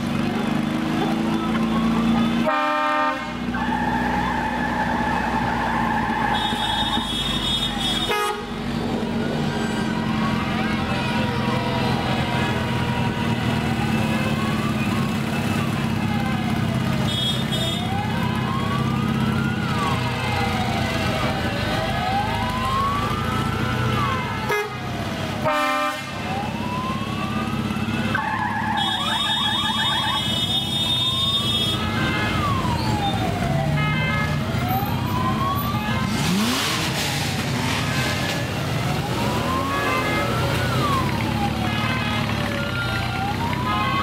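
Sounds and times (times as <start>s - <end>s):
motorcycle engines running: 0.0s - 2.6s, 8.6s - 25.5s, 26.2s - 44.0s
wailing siren: 0.6s - 44.0s
warbling siren tone: 26.2s - 30.4s
engine revving: 34.7s - 44.0s.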